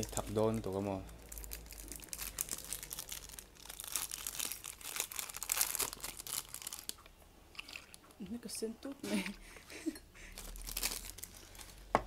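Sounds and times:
plastic snack packet crinkling: 0.0s - 8.0s, 10.3s - 11.9s.

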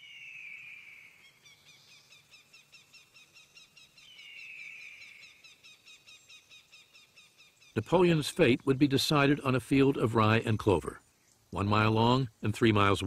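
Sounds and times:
high bird chirping: 0.0s - 7.8s.

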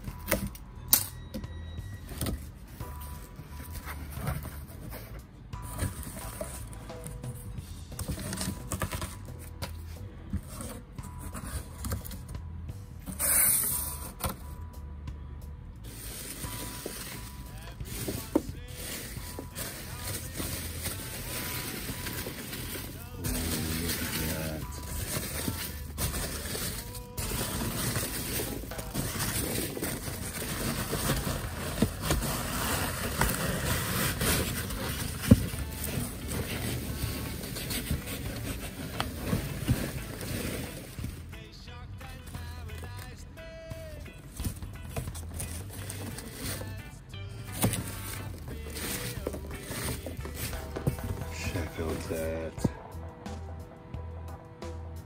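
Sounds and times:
cardboard rubbing and scraping: 2.3s - 6.7s, 8.0s - 12.2s, 15.9s - 41.3s, 44.3s - 46.8s, 47.5s - 52.7s
foam packing peanuts rustling: 15.9s - 41.4s, 44.3s - 52.7s.

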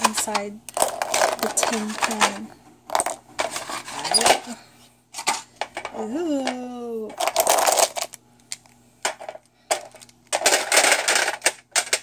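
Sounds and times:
markers clattering in metal tin: 0.0s - 4.4s, 6.4s - 8.2s.

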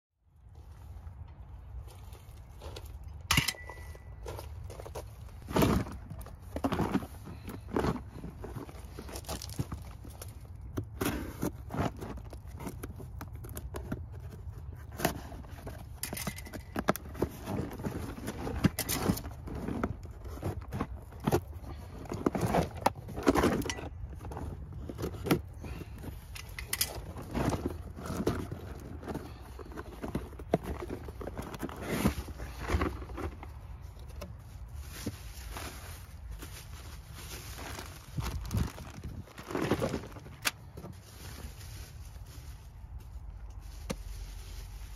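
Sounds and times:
cardboard box rustling: 4.2s - 44.9s.

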